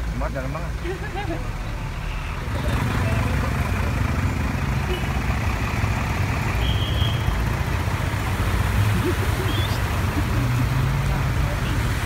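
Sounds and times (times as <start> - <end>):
vehicles driving through water: 0.0 - 12.0
water splashing: 8.0 - 12.0.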